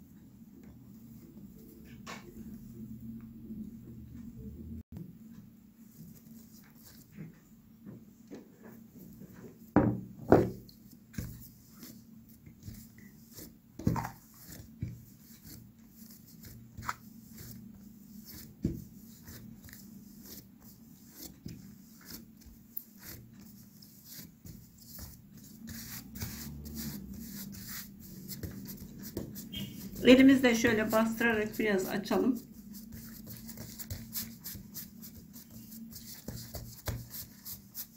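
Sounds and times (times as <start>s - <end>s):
dough slapping and squelching: 10.5s - 37.9s.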